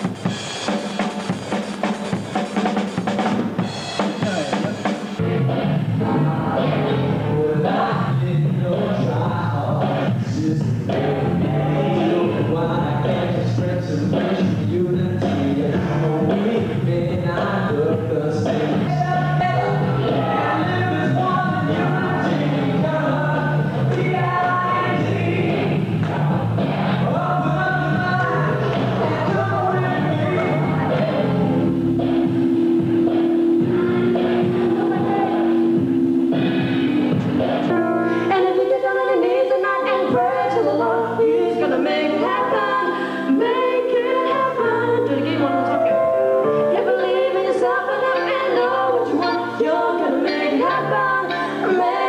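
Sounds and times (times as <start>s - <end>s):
live rock band playing: 0.0s - 39.2s
sung vocals: 4.2s - 52.0s
voices singing in harmony: 6.0s - 31.7s, 36.9s - 52.0s.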